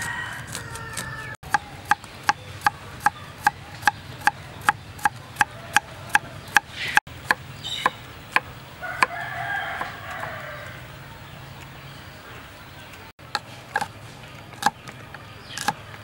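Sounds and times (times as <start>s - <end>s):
rooster crowing: 0.0s - 1.4s, 8.8s - 10.9s
knife chopping on a board: 0.5s - 9.2s.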